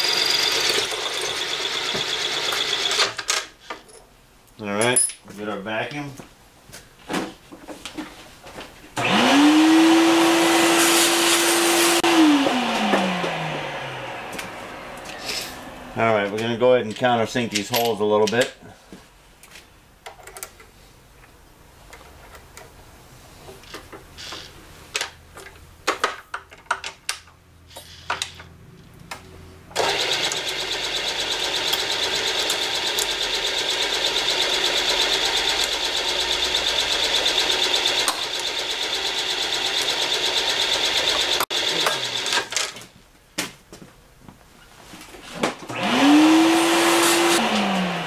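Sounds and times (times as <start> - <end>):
loud steady motor: 9.1 - 15.2, 29.8 - 42.4, 45.8 - 48.0.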